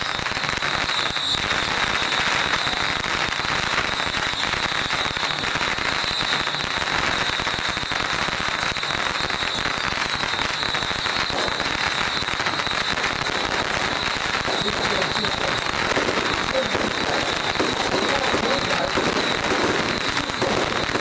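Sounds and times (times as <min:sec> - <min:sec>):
firecrackers crackling: 0:00.0 - 0:21.0.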